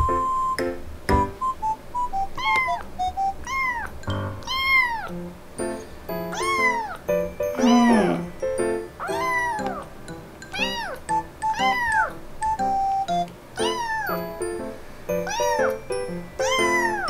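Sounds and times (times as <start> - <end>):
soft background music: 0.0 - 17.0
kitten meowing loudly: 7.6 - 8.3.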